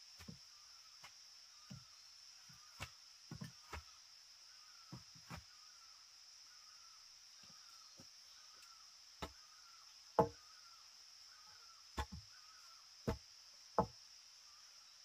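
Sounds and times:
wood being chopped: 10.2 - 10.4, 12.0 - 12.3, 13.0 - 13.2.

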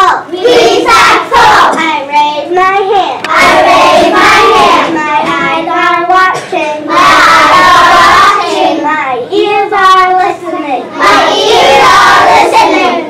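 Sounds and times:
child chanting a line: 0.0 - 13.0
class chanting in unison: 3.3 - 5.0, 6.8 - 8.9, 10.9 - 13.0.

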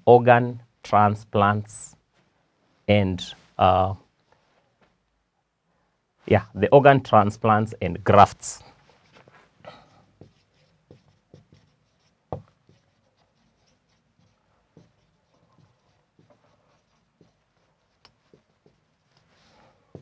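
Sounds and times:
marker pen writing on whiteboard: 8.2 - 20.0.

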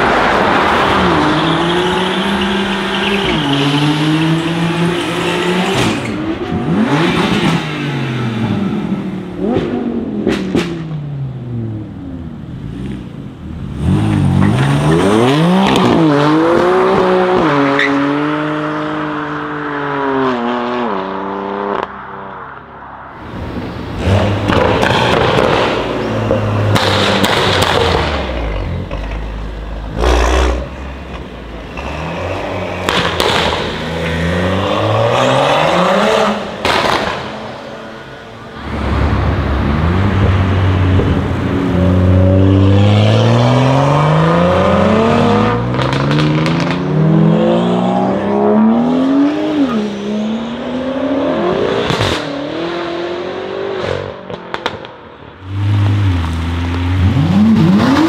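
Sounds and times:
tyres squealing: 1.0 - 6.6
exhaust cracks: 32.8 - 34.1.

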